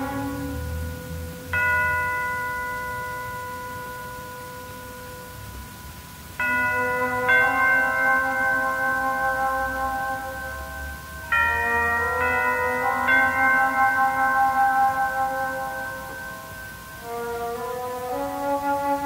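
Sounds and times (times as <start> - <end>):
orchestral bell-like chords: 0.0 - 19.0.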